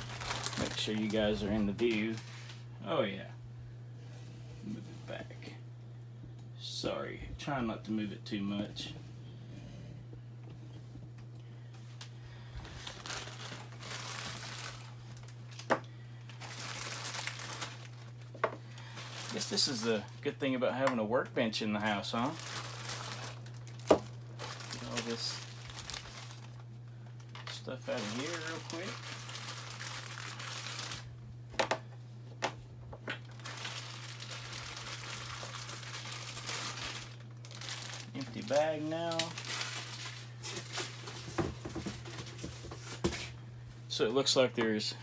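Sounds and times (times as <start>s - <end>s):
bag crinkling and rustling: 0.0s - 2.6s, 12.6s - 15.7s, 16.3s - 20.2s, 22.2s - 31.1s, 33.2s - 43.3s.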